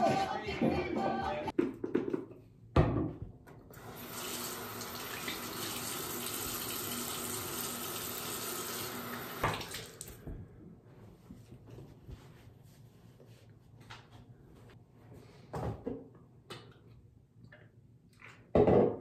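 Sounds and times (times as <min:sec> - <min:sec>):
bathroom faucet running: 0:03.7 - 0:10.2.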